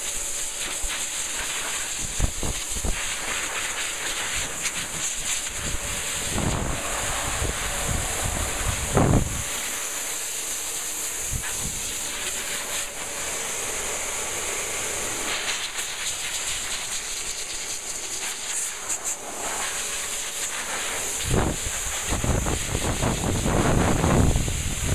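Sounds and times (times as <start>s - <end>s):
hairdryer blowing air: 0.0s - 24.9s
wind buffeting microphone: 5.6s - 9.5s, 21.2s - 24.9s.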